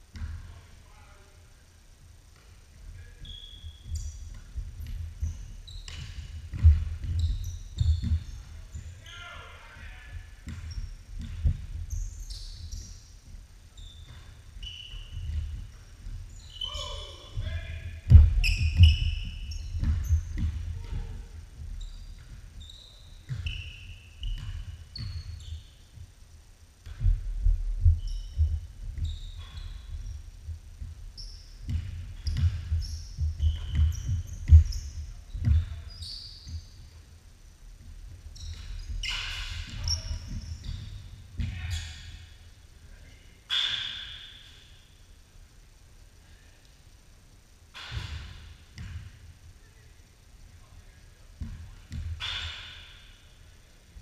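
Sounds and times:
sneakers squeaking on court: 3.2s - 9.2s, 9.8s - 13.1s, 13.7s - 26.0s, 26.9s - 37.0s, 38.4s - 42.4s, 51.4s - 53.2s
basketball dribbling on hardwood: 3.6s - 8.9s, 10.1s - 12.0s, 17.4s - 22.6s, 23.2s - 23.6s, 31.6s - 35.8s, 51.4s - 52.2s.

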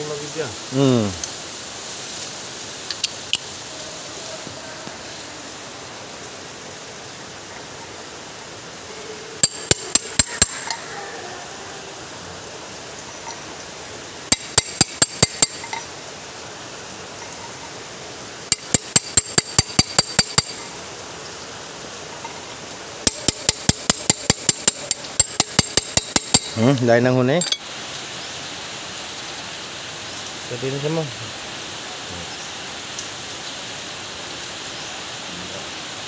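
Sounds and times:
metal striking metal taps: 9.4s - 10.8s, 13.2s - 13.5s, 14.3s - 15.9s, 18.5s - 20.7s, 22.1s - 26.8s, 27.4s - 27.6s.

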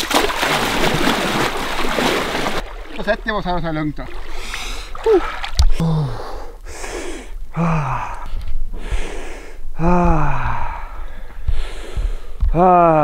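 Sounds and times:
hard breathing: 4.3s - 12.6s
men gasping and groaning: 4.4s - 13.0s.

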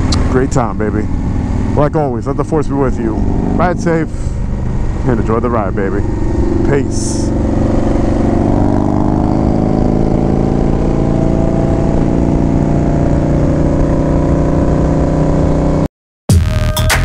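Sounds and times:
motorcycle engine cruising: 0.0s - 15.9s
electronic music: 16.3s - 17.0s.

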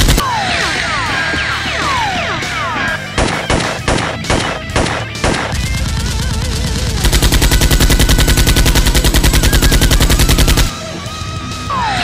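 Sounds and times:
automatic gunfire sound effect: 0.0s - 0.2s, 3.2s - 10.7s.

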